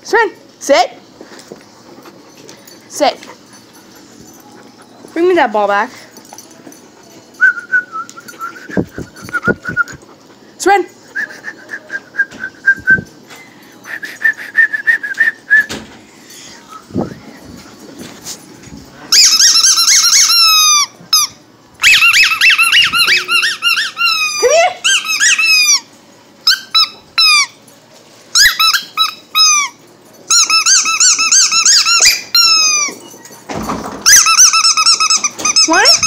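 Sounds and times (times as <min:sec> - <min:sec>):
rubber squeaky toy squeaking: 0:19.1 - 0:25.8, 0:30.3 - 0:32.9, 0:34.1 - 0:36.0.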